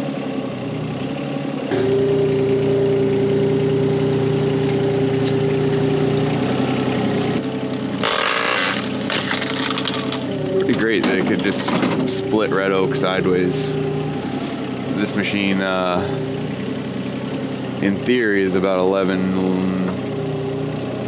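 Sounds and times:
excavator diesel engine running: 0:00.0 - 0:21.0
hydraulic whine: 0:01.7 - 0:18.2.

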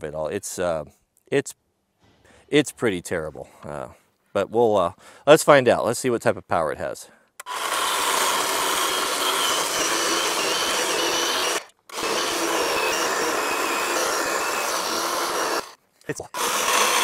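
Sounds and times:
electric chainsaw motor whine: 0:07.4 - 0:17.0.

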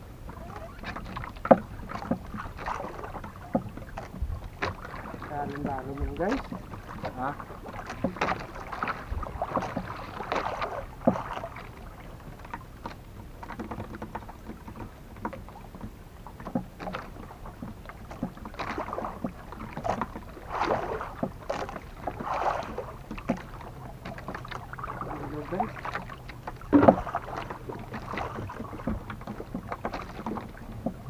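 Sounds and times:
water lapping against boat: 0:00.0 - 0:31.0
knocks and splashes on hull: 0:00.2 - 0:31.0.

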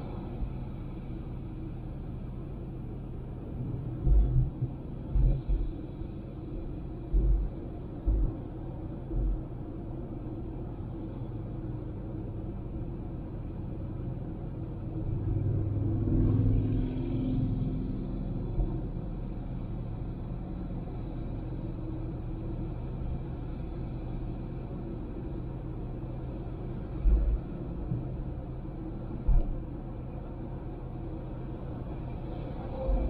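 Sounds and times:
low hum with steady tone: 0:00.0 - 0:33.0
low road rumble: 0:00.0 - 0:33.0.

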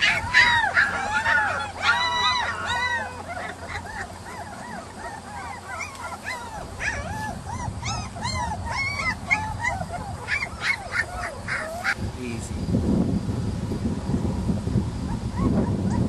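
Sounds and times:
puppies whimpering and yelping: 0:00.0 - 0:12.0, 0:15.0 - 0:16.0.

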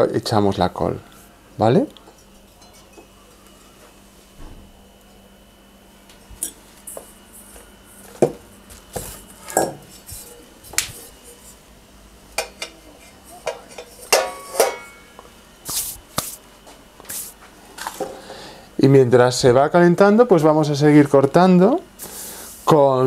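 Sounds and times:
pots and utensils clinking: 0:02.1 - 0:03.2, 0:12.4 - 0:15.2.

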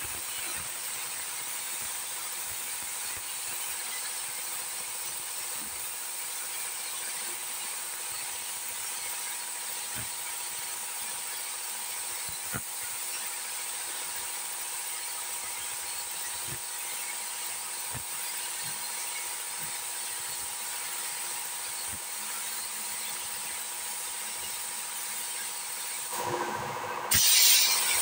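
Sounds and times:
spray gun air hissing: 0:00.6 - 0:26.4, 0:27.1 - 0:28.0.

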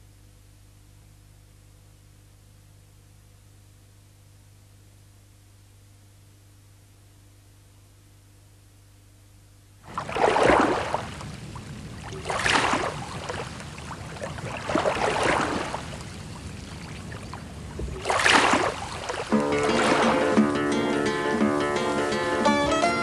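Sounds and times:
small waves washing onto shore: 0:09.8 - 0:20.6
plucked string music: 0:19.3 - 0:23.0.

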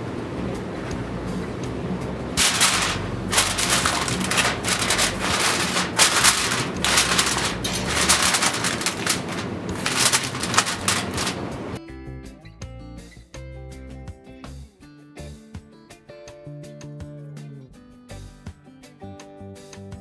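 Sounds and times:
aluminium foil crinkling: 0:02.4 - 0:11.8.

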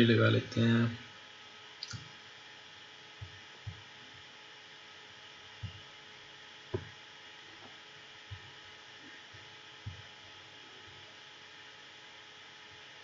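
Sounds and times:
faint room tone hum: 0:00.0 - 0:13.0
soft low thumps: 0:03.2 - 0:03.9, 0:05.5 - 0:05.9, 0:06.7 - 0:07.0, 0:07.6 - 0:08.7, 0:09.4 - 0:10.2.

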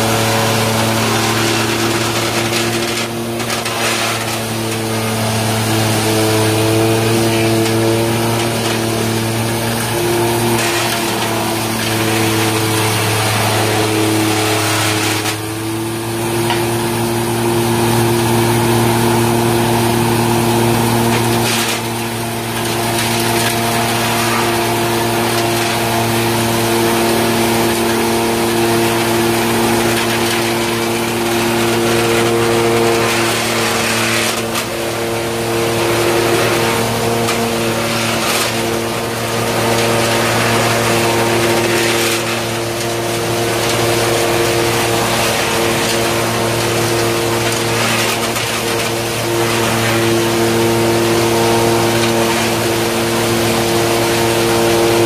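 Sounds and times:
sawdust machine humming: 0:00.0 - 0:55.0
wood being ground: 0:00.0 - 0:55.0.

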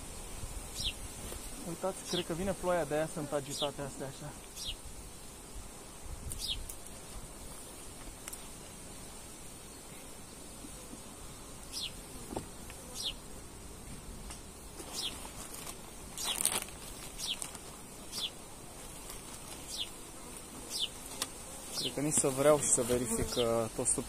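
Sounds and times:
honeybees buzzing: 0:00.0 - 0:24.0.

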